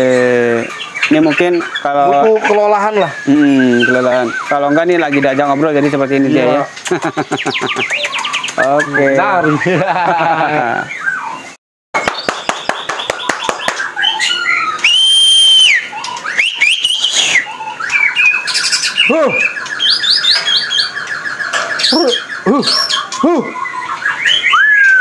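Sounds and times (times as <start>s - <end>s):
bird singing varied song: 0.0s - 25.0s.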